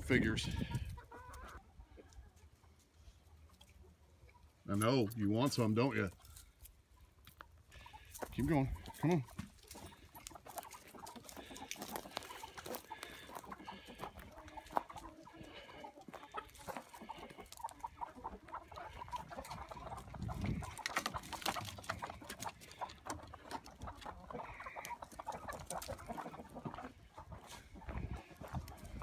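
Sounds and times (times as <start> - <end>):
chickens clucking: 0.0 - 29.0
footsteps in dry leaves: 9.4 - 14.0
dry leaves rustling: 9.5 - 13.9.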